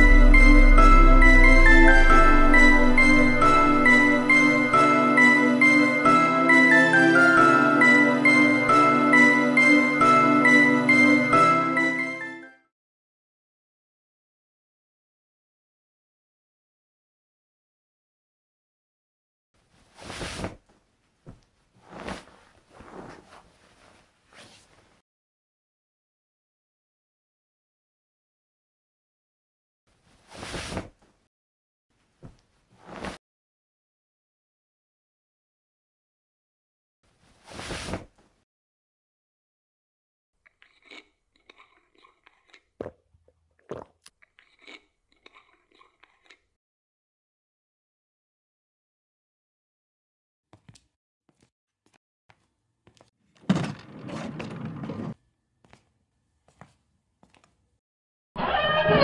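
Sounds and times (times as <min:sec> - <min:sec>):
bedsheet rustling: 0:19.6 - 0:25.0, 0:32.0 - 0:33.2.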